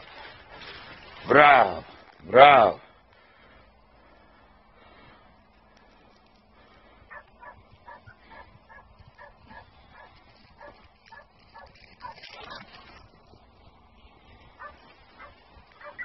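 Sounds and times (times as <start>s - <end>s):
dog yelping and barking: 14.6s - 16.0s.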